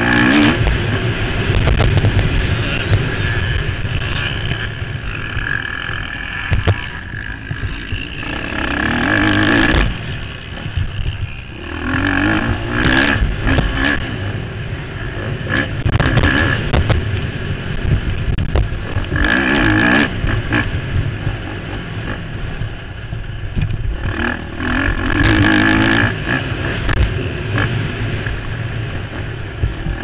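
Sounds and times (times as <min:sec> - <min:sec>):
motorbike engine revving: 0:00.0 - 0:30.0.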